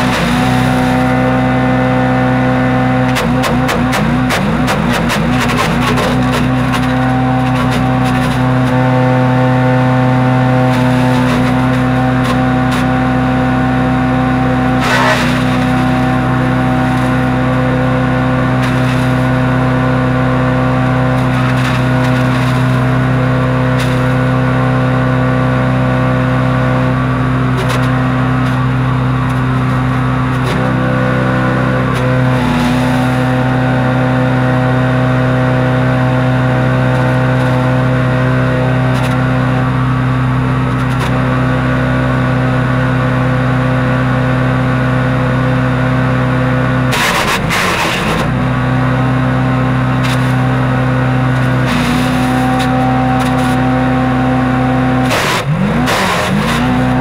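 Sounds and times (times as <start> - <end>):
wood chipper engine running: 0.0 - 57.0
crackling wood being chipped: 3.1 - 8.8, 14.8 - 15.8, 46.9 - 48.3, 55.0 - 57.0.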